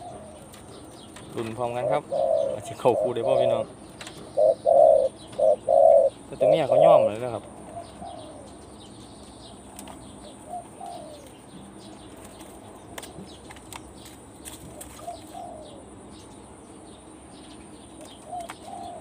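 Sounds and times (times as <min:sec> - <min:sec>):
dove cooing: 0:00.0 - 0:08.7, 0:10.2 - 0:11.4, 0:14.7 - 0:15.9, 0:18.1 - 0:19.0.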